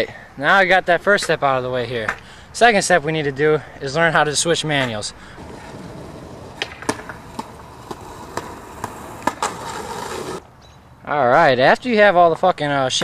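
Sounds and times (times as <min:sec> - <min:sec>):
skateboard rolling on concrete: 0:04.7 - 0:10.6
skateboard clicks and knocks: 0:04.8 - 0:10.4.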